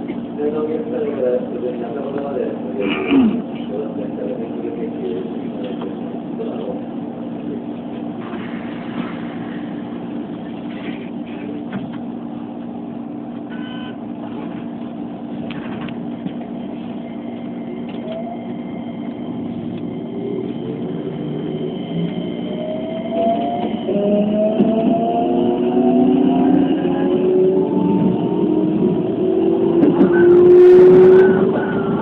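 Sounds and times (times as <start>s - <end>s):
train rumble and hum: 0.0s - 32.0s
train motor whine: 16.7s - 29.2s.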